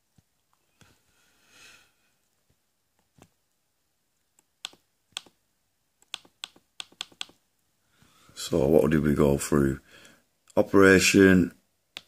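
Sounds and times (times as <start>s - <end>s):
faint breath: 0.7s - 2.2s, 7.8s - 8.4s, 9.8s - 10.3s
computer clicks: 4.6s - 5.4s, 6.0s - 7.4s.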